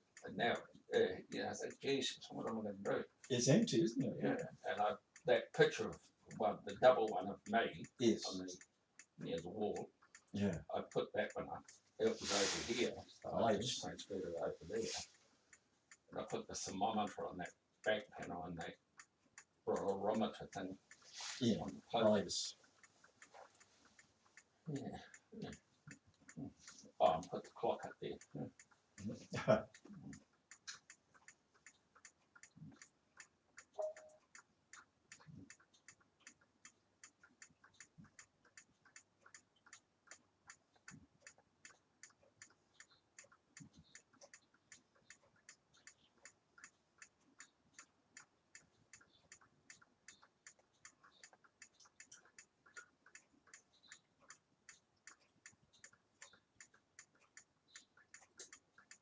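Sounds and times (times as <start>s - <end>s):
wall clock ticking: 0.0s - 59.0s
short tone: 33.8s - 34.2s.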